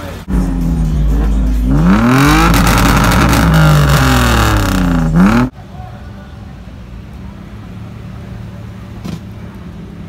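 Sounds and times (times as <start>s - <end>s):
car engine revving: 0.2s - 5.5s.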